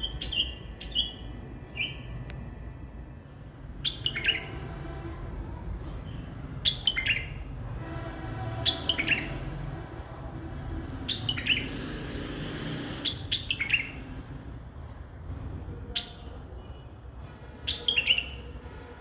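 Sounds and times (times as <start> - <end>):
bird singing: 0.0 - 2.2, 3.8 - 4.6, 6.2 - 7.5, 8.6 - 9.5, 11.1 - 11.8, 13.0 - 14.0, 17.7 - 18.5.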